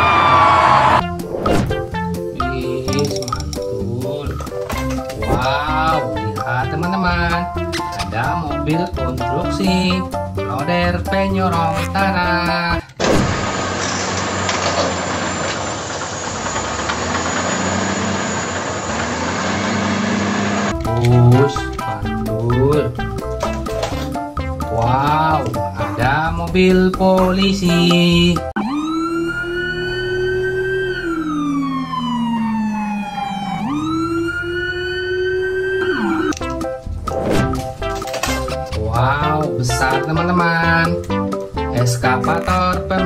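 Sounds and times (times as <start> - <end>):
police siren wailing: 0.0 - 1.0, 28.6 - 36.5
wheel loader diesel engine running: 13.3 - 20.8.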